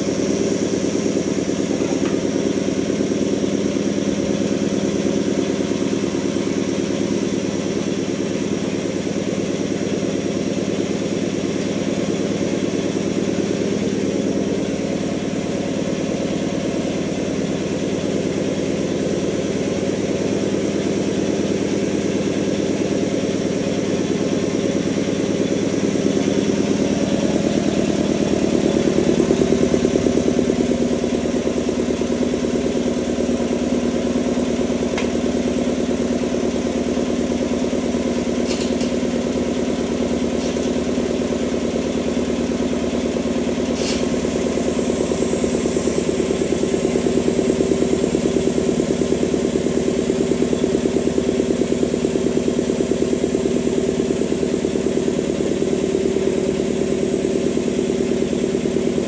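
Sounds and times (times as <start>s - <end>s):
air compressor running: 0.0s - 59.0s.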